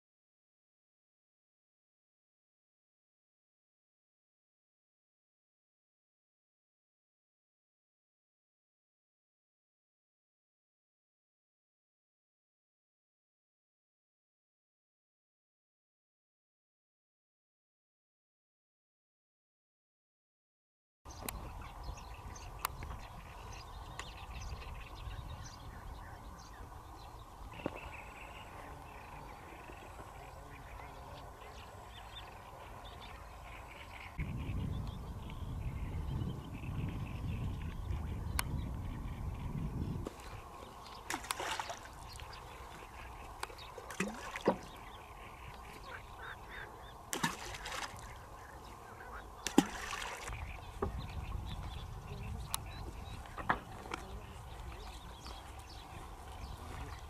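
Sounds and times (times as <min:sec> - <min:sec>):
birds chirping: 0:21.1 - 0:57.0
waterfowl calling: 0:22.4 - 0:34.6, 0:40.1 - 0:57.0.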